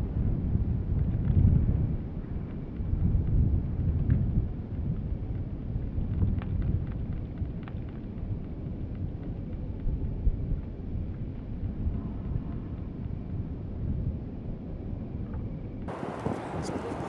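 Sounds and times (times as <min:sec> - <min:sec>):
distant jet engines rumbling: 0:14.8 - 0:17.0.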